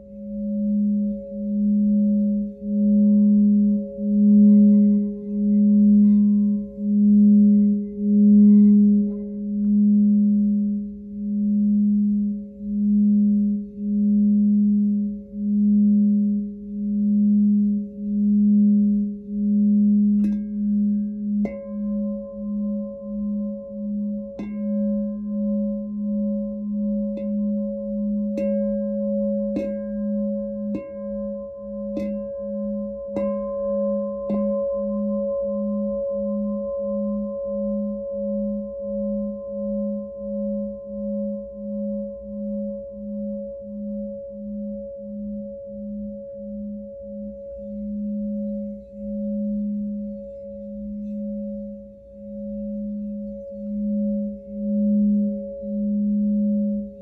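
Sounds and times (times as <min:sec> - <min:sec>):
glass singing bowl ringing: 0:00.0 - 0:57.0
singing bowl tapped lightly: 0:20.2 - 0:20.7, 0:29.4 - 0:31.2.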